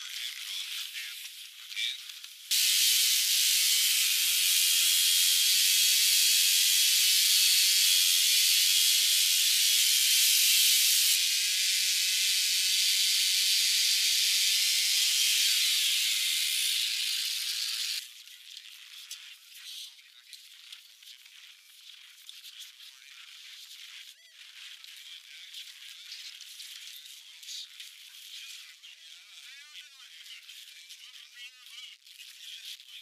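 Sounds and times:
chainsaw cutting ice: 2.5s - 18.0s.

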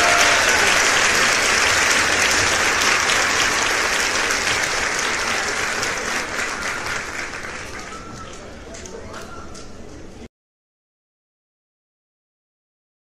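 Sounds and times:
crowd applauding: 0.0s - 9.3s.

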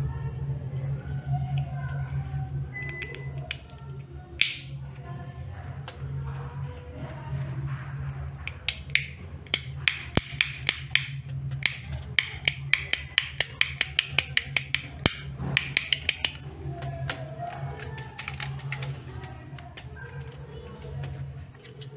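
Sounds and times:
steady low hum: 0.0s - 21.9s
rocker switch clicking: 4.4s - 4.7s, 8.5s - 17.2s.

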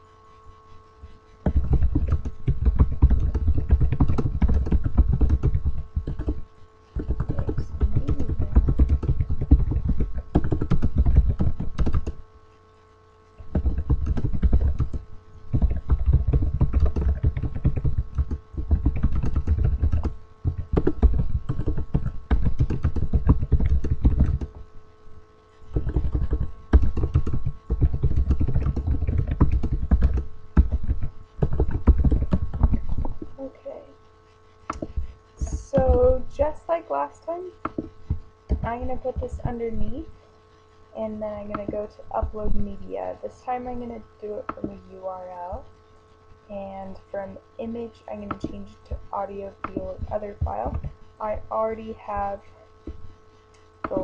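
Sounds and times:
steady electrical hum: 0.0s - 54.0s
fast typing on keyboard: 1.4s - 12.2s, 13.4s - 24.6s, 25.7s - 33.3s, 34.7s - 36.5s, 37.6s - 39.6s.

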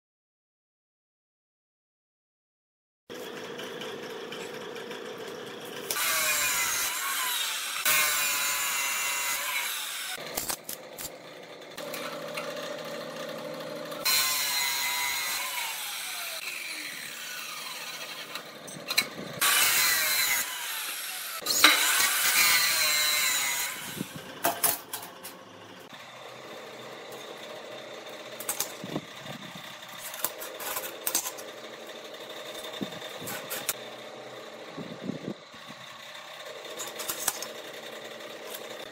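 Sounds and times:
cut-off saw grinding steel: 3.1s - 38.9s
metal tools clicking and scraping: 10.2s - 11.2s, 18.0s - 19.6s, 24.4s - 25.4s, 30.0s - 31.5s, 36.7s - 37.5s.

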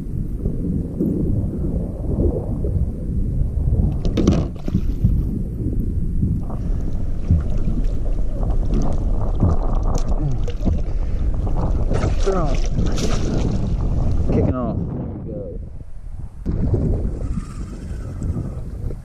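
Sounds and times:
wind buffeting microphone: 0.0s - 19.0s
water splashing against board: 4.0s - 5.3s, 6.4s - 14.3s.

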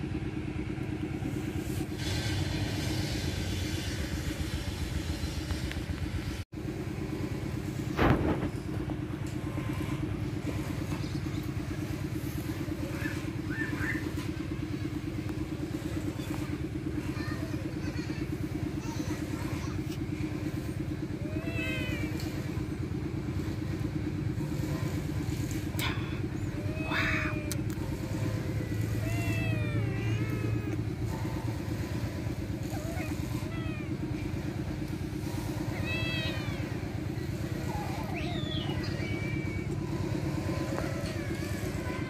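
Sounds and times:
steady low rumble: 0.0s - 42.0s
kittens mewing: 20.4s - 23.5s, 24.5s - 42.0s.

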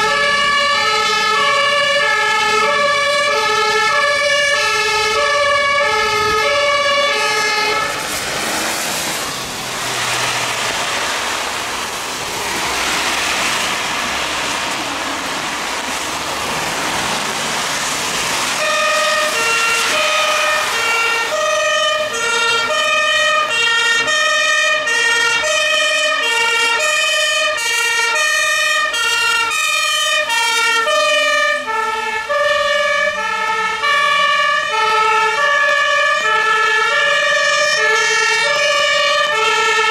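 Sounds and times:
two-tone fire engine sirens: 0.0s - 39.9s
rushing noise: 3.8s - 24.1s.

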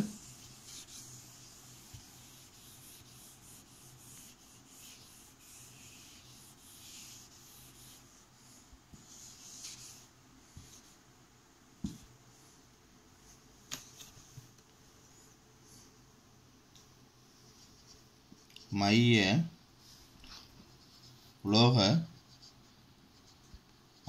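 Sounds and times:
whiteboard eraser swishing: 0.0s - 11.0s.

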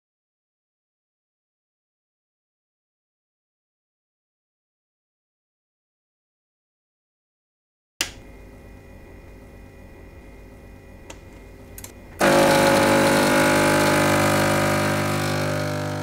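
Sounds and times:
espresso machine hum: 8.3s - 16.0s
pump buzzing: 12.2s - 16.0s.

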